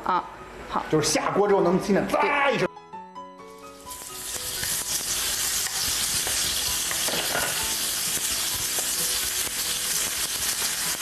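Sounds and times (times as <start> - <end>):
meat sizzling in oil: 3.5 - 11.0.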